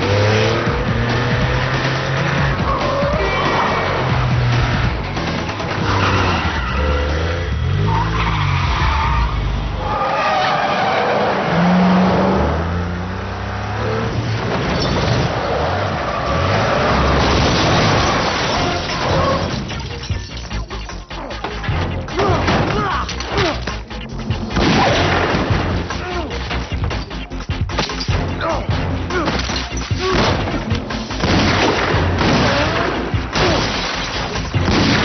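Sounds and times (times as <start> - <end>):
car engines revving: 0.0 - 20.0
tyres squealing: 0.9 - 11.8, 14.8 - 25.1.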